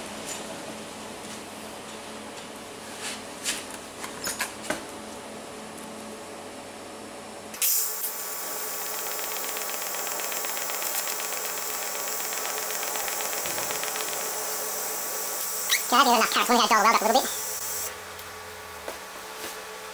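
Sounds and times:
welding arc hissing buzz: 0:07.6 - 0:18.0.

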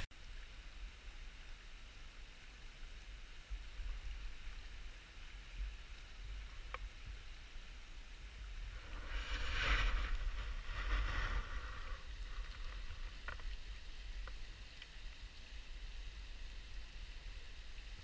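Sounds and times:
wind rumble on microphone: 0:03.4 - 0:18.0
faint sharp clicks: 0:14.2 - 0:15.2.

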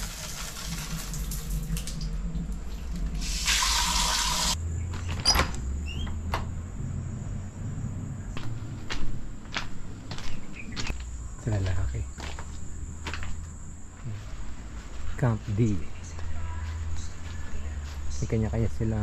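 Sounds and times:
shower head spraying water: 0:03.2 - 0:04.6.

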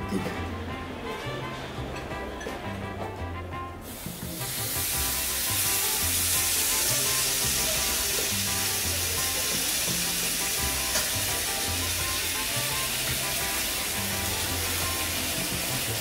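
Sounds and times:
background music: 0:00.0 - 0:16.0
food sizzling in a frying pan: 0:03.8 - 0:16.0.

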